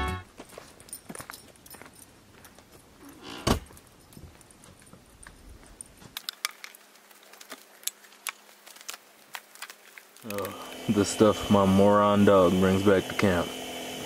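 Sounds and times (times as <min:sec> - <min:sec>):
light metallic jangling: 0:00.4 - 0:06.1
scattered clicks: 0:06.2 - 0:10.6.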